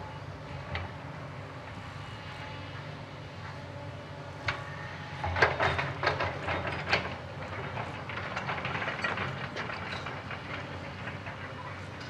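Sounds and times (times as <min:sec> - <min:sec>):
excavator diesel engine running: 0:00.0 - 0:12.0
metallic clanks and rattles: 0:05.2 - 0:12.0.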